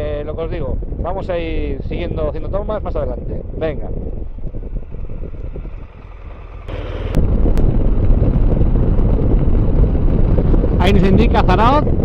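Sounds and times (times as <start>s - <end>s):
wind noise on microphone: 0.0s - 12.0s
motorcycle accelerating: 4.0s - 12.0s.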